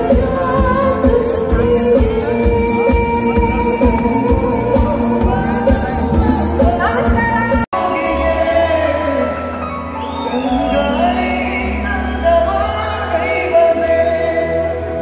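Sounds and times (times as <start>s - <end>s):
amplified backing music: 0.0s - 15.0s
man singing into microphone: 7.7s - 15.0s.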